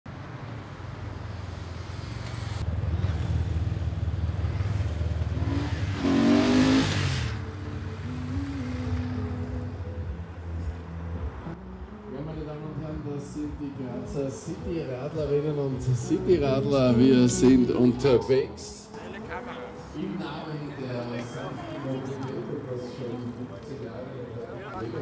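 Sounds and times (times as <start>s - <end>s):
traffic rumble: 0.1s - 25.0s
vehicle passing loudly: 0.8s - 11.6s.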